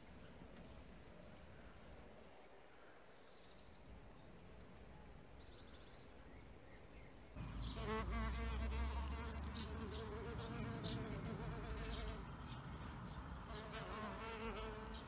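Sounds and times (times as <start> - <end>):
bee buzzing in flight: 7.4 - 15.0.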